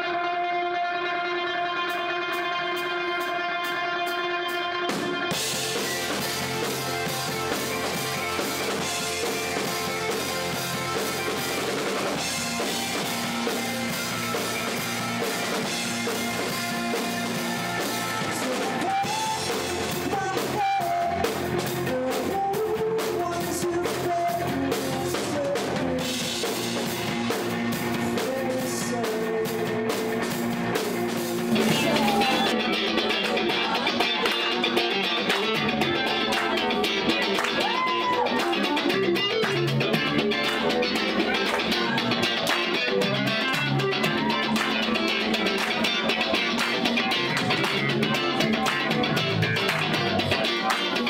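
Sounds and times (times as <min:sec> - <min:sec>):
live rock band playing: 0:00.0 - 0:51.0
man singing: 0:18.1 - 0:26.9, 0:27.9 - 0:30.4, 0:31.5 - 0:39.6.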